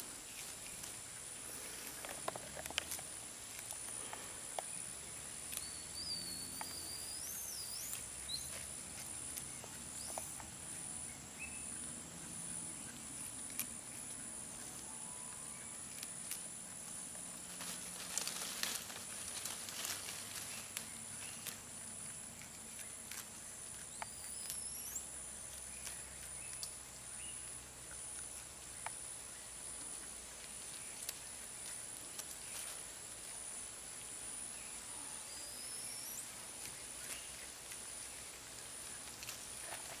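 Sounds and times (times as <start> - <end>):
insects droning: 0.0 - 40.0
leafy stems rustling and snapping: 0.3 - 1.0, 1.7 - 4.7, 5.4 - 5.7, 13.4 - 13.8, 15.9 - 24.7, 30.4 - 33.3, 36.6 - 40.0.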